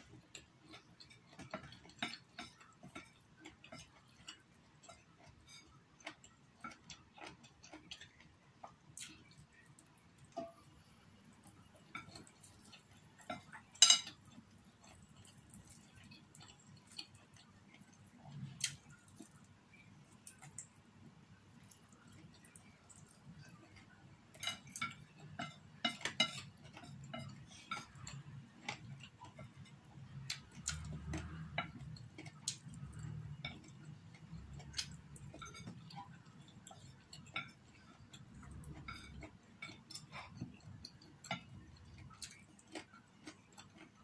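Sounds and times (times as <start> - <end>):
chewing noises: 0.0 - 20.8, 21.4 - 44.0
chopsticks tapping on a ceramic plate: 11.9 - 14.2, 24.3 - 29.6.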